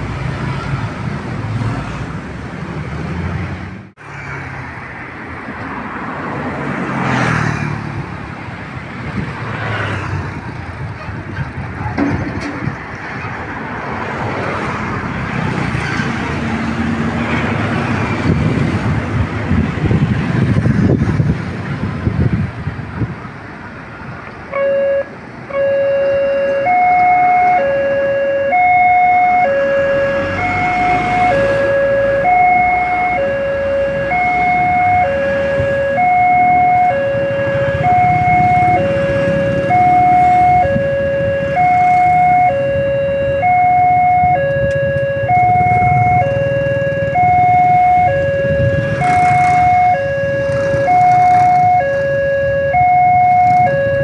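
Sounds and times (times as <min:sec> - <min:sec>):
road traffic engines: 0:00.0 - 0:54.0
level crossing two-tone alarm: 0:24.5 - 0:54.0.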